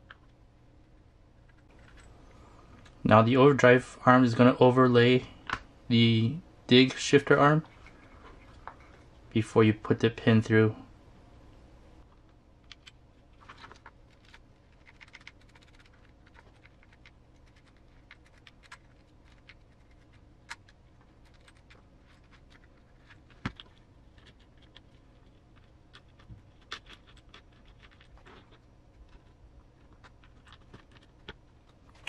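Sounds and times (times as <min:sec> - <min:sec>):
small parts clicking and tapping: 0:12.1 - 0:32.0.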